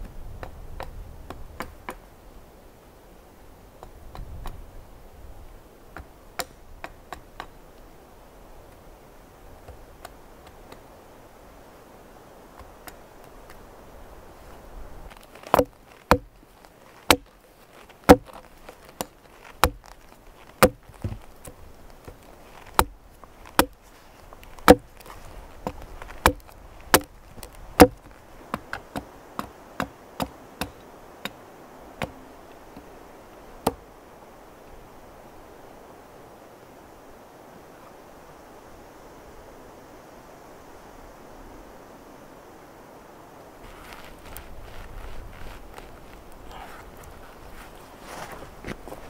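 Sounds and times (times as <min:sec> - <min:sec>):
hatchet chopping wood: 0:15.4 - 0:16.4, 0:17.0 - 0:17.4, 0:18.0 - 0:23.8, 0:24.6 - 0:25.0, 0:25.6 - 0:31.4, 0:32.0 - 0:32.2.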